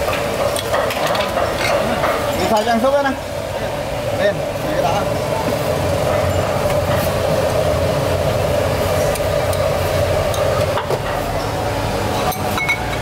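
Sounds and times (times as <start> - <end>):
loud mechanical drone: 3.2 - 12.8.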